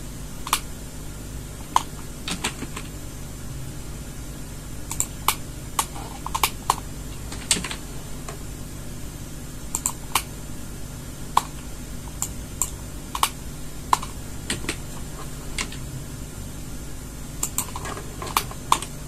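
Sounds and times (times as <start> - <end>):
low steady hum: 0.0 - 19.0
keyboard and mouse clicking: 0.4 - 0.7, 1.6 - 2.9, 4.9 - 8.4, 9.7 - 10.3, 11.4 - 15.8, 17.4 - 19.0.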